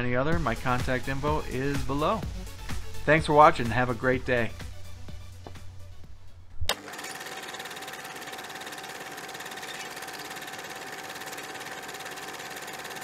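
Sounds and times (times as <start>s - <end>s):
rapid machine-like clatter: 6.7s - 13.0s.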